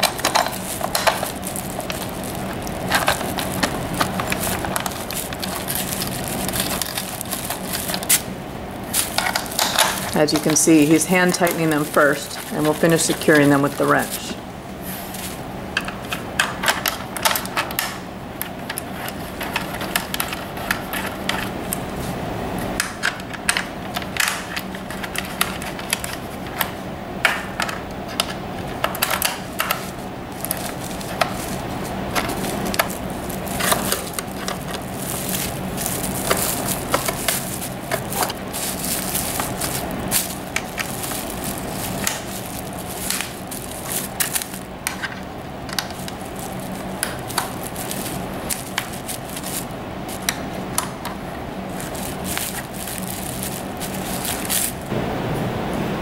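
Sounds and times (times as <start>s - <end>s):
bubble wrap crinkling: 0.0s - 54.9s
steady low hum: 0.0s - 56.0s.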